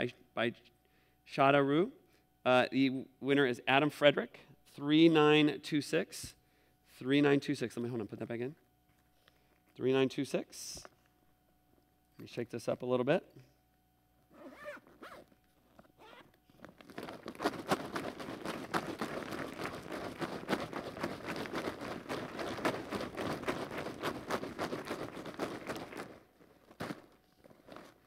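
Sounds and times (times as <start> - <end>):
paper tickets rustling in plastic bag: 16.5 - 28.0.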